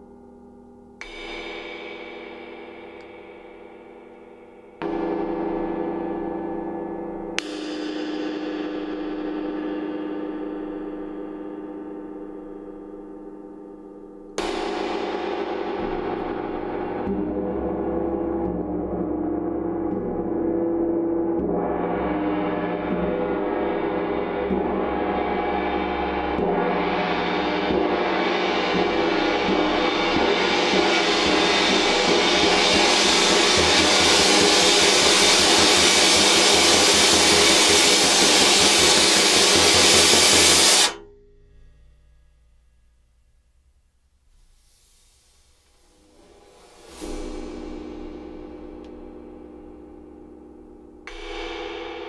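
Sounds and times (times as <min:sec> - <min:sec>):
gong struck with mallet: 0:47.0 - 0:52.0.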